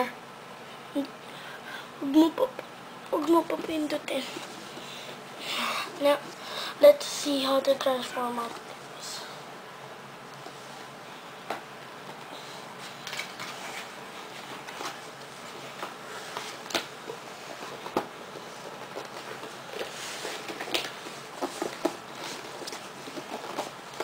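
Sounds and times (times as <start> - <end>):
rustling of objects handled: 12.0 - 24.0.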